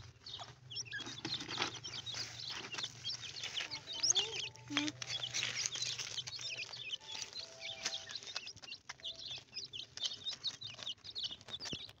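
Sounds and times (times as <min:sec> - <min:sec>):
chicks cheeping: 0:00.0 - 0:12.0.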